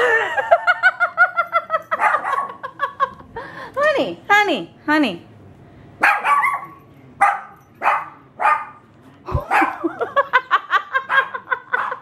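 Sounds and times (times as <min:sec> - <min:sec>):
puppy barking: 0:02.0 - 0:02.6, 0:06.0 - 0:08.8, 0:09.4 - 0:10.0, 0:11.1 - 0:12.0.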